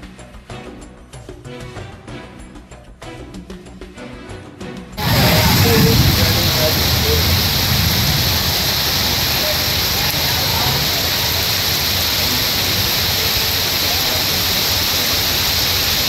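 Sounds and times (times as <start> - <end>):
heavy rain on street: 5.0 - 16.0.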